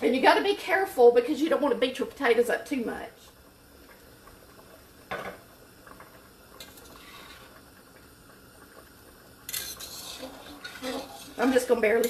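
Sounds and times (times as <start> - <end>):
spoon stirring soup in pot: 9.5 - 11.5.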